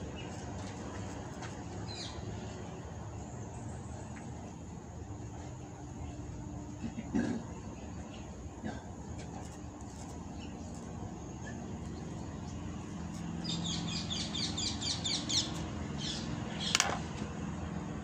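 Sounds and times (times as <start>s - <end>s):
low steady hum: 0.0s - 18.0s
bird chirping: 10.4s - 16.8s.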